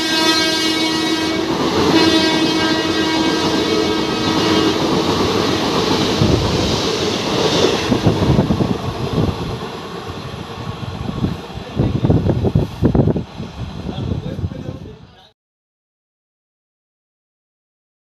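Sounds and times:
locomotive horn: 0:00.0 - 0:05.7
train coaches rushing past: 0:00.0 - 0:15.3.

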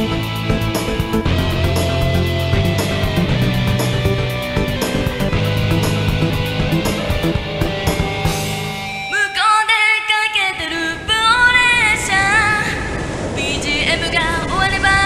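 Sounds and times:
instrumental band backing: 0:00.0 - 0:09.1.

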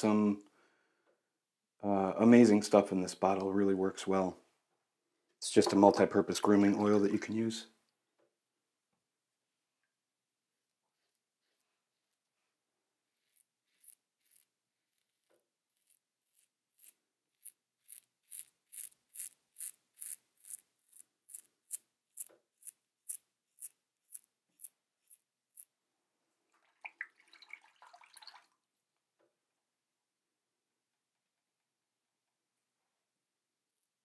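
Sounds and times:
razor scraping stubble: 0:13.1 - 0:25.7.

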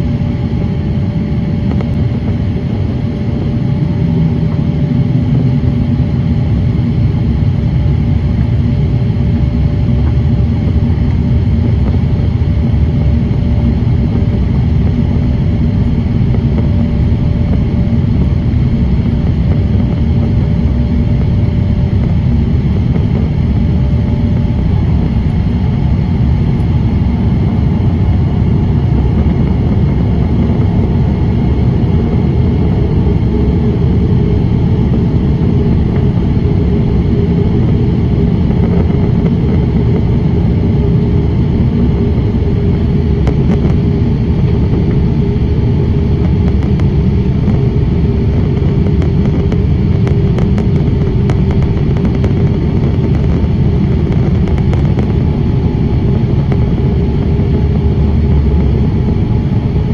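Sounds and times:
airliner cabin engine and airflow rumble: 0:00.0 - 0:59.9.

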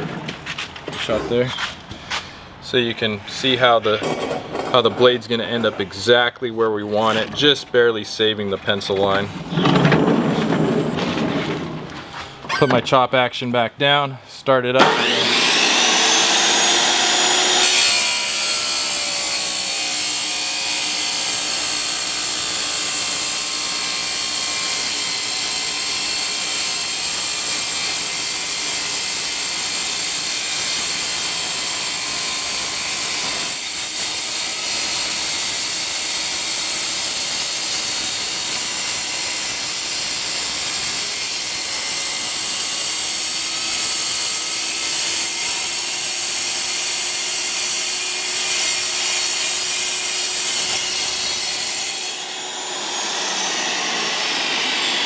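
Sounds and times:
wet tile saw cutting tile: 0:12.5 - 0:12.8, 0:14.8 - 0:55.0.

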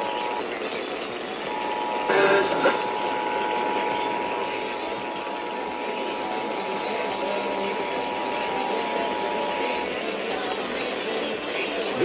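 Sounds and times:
radio static hiss: 0:01.4 - 0:10.9
two-tone alert signal: 0:01.5 - 0:05.8.

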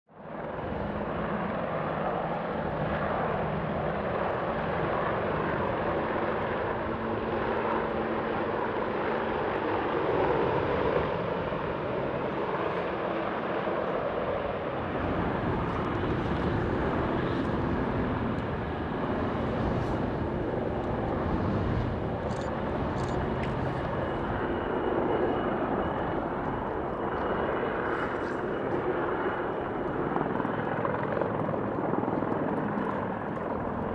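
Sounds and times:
helicopters flying overhead: 0:00.1 - 0:33.9.

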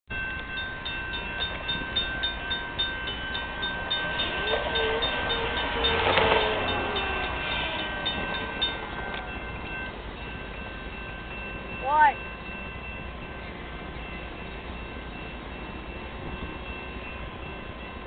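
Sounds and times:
crossing warning bell ringing: 0:00.1 - 0:18.0
diesel locomotive rumble: 0:00.1 - 0:18.0
locomotive horn: 0:03.6 - 0:09.8.

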